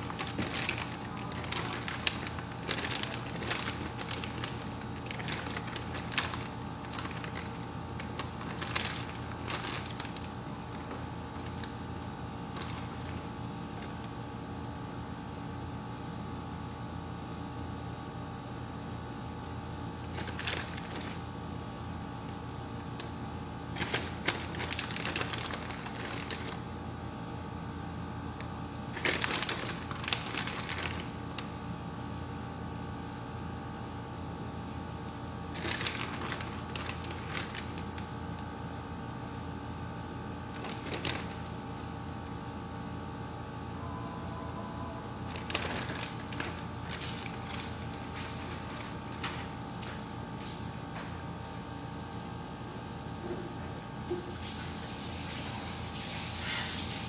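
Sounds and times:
plastic bag crinkling: 0.0s - 14.2s, 20.0s - 21.3s, 23.7s - 26.7s, 28.9s - 31.6s, 35.2s - 38.5s, 40.4s - 41.8s, 45.2s - 50.6s
steady background hum: 0.0s - 57.0s.

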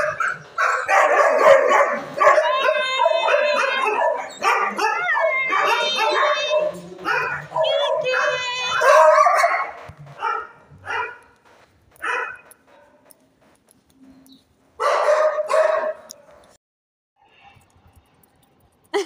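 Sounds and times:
dog barking: 0.0s - 11.4s, 12.0s - 13.1s, 14.8s - 16.4s.

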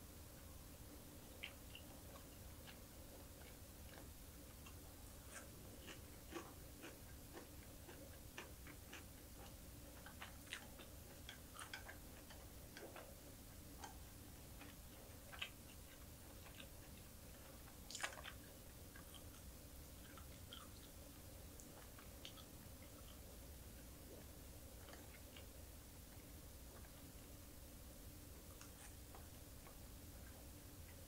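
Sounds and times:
person chewing crunchy food: 1.3s - 25.6s.

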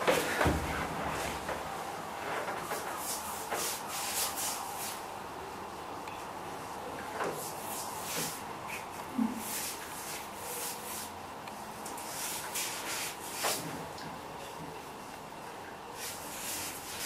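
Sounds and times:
paintbrush swishing on wood: 2.8s - 5.0s, 7.3s - 11.2s, 11.9s - 13.8s, 16.0s - 17.0s.

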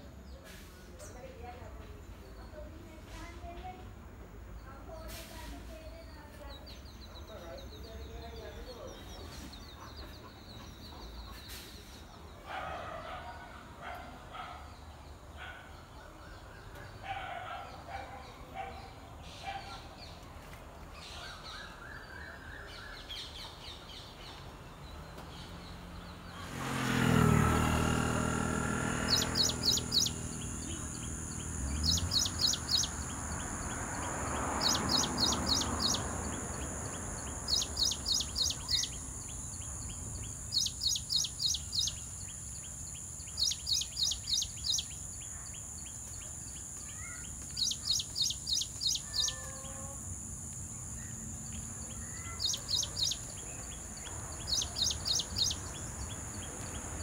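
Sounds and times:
faint bird calls: 28.9s - 50.1s, 50.9s - 56.8s
songbird singing high notes: 29.0s - 46.0s, 46.8s - 49.9s, 51.0s - 56.5s.

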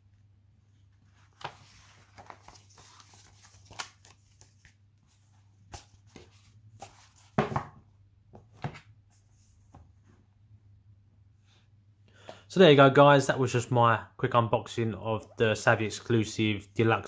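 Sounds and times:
paper poster rustling: 1.0s - 7.6s.

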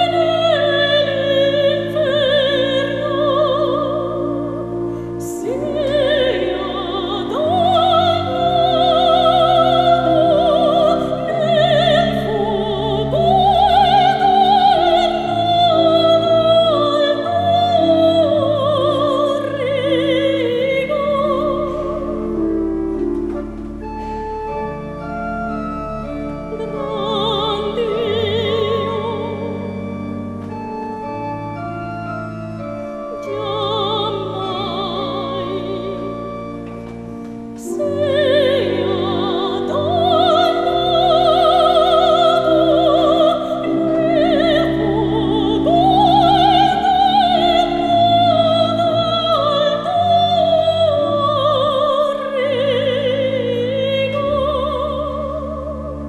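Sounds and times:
pipe organ: 0.0s - 56.0s
soprano singing: 0.0s - 56.0s.

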